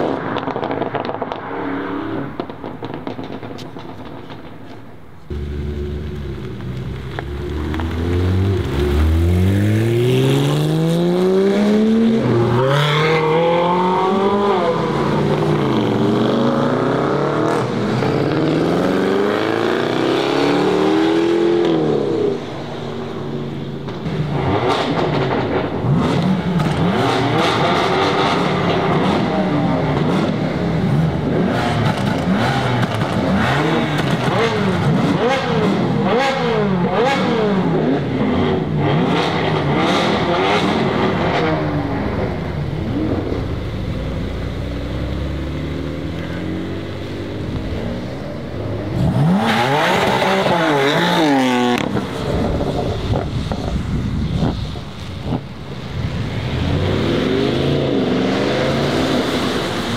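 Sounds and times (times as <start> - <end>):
cars revving and pulling away: 0.0 - 59.9
sports car engine accelerating: 5.3 - 22.2.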